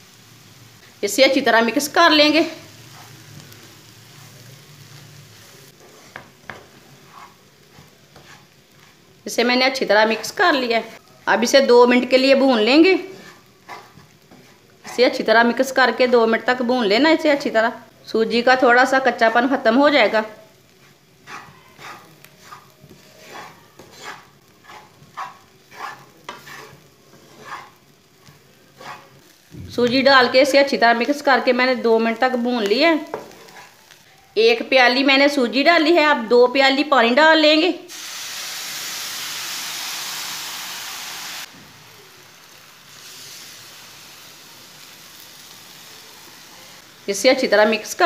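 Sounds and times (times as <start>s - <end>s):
water hissing in hot pan: 0.0s - 11.0s, 37.9s - 47.9s
faint sizzle: 0.0s - 48.0s
wooden spatula scraping a pan: 2.7s - 3.3s, 4.0s - 5.0s, 5.7s - 9.1s, 12.5s - 16.2s, 18.8s - 29.3s, 32.6s - 34.0s.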